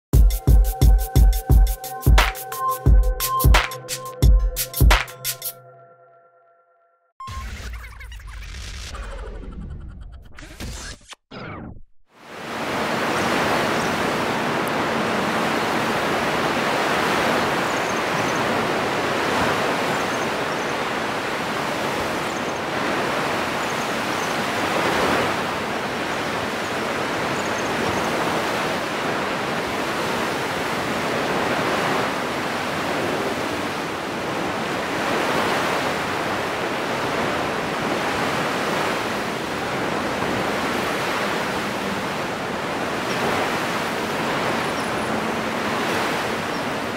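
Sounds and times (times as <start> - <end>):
ocean surf breaking on beach: 12.2 - 46.9.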